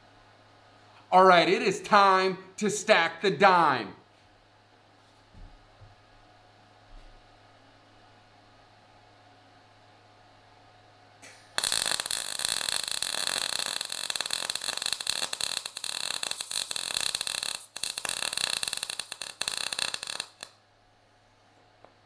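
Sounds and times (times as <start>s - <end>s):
welding arc crackling: 11.2s - 20.6s.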